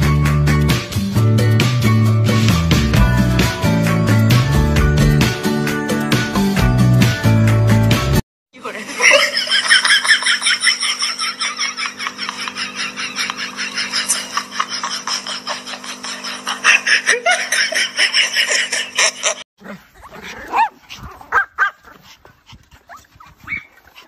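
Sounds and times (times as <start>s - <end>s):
small dogs yipping and barking: 19.6s - 24.0s.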